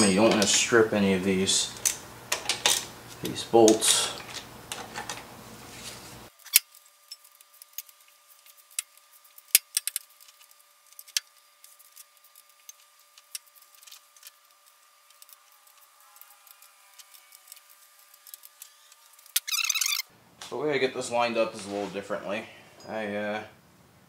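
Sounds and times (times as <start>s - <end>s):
ratchet wrench clicking: 16.5s - 20.0s.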